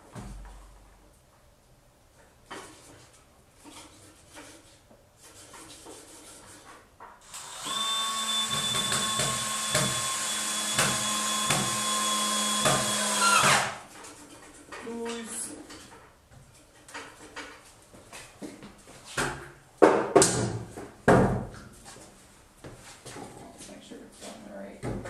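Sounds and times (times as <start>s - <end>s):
electric drill running: 7.2s - 13.8s
drill clicking: 7.3s - 13.7s.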